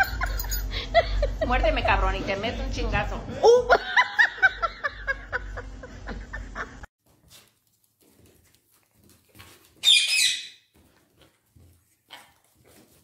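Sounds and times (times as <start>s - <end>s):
parakeet squawk: 9.8s - 10.6s.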